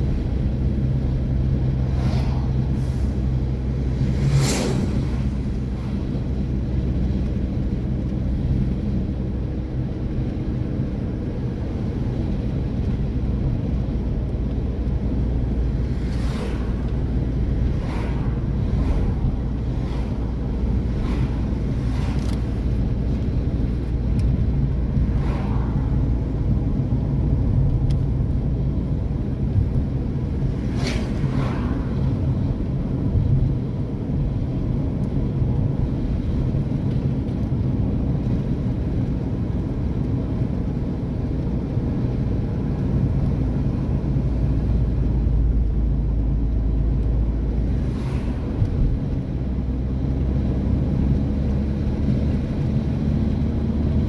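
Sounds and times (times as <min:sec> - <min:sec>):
vehicles whooshing past: 0:00.0 - 0:08.8, 0:11.6 - 0:37.0, 0:42.0 - 0:54.0
car cabin road rumble: 0:00.0 - 0:54.0.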